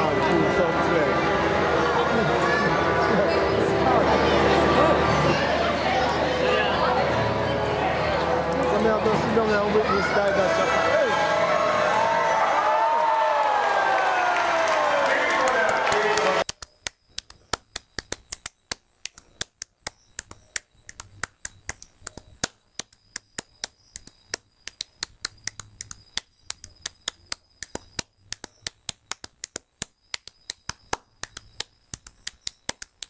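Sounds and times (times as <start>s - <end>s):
rapid sharp clicks: 16.4s - 33.0s.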